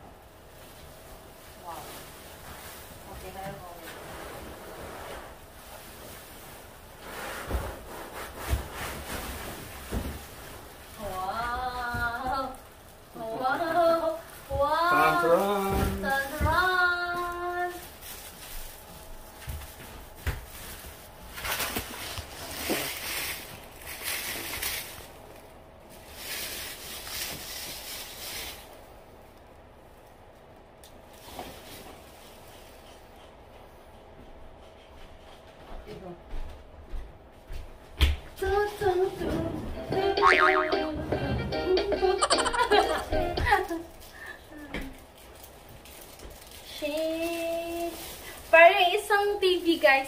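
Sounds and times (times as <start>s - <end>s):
plastic bag crinkling: 12.4s - 28.8s, 43.6s - 50.0s.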